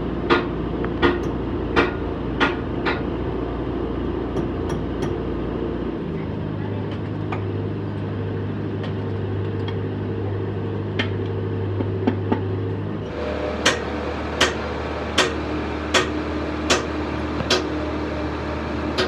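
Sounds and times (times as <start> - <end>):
metal lathe humming: 13.0 - 19.0.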